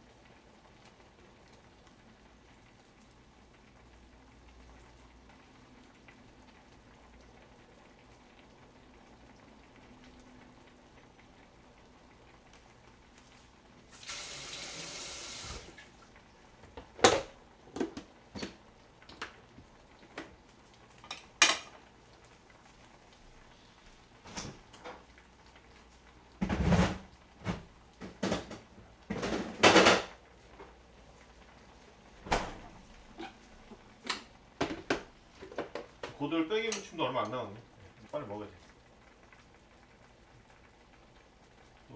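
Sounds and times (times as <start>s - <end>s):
kitchen tap running: 13.9s - 16.1s.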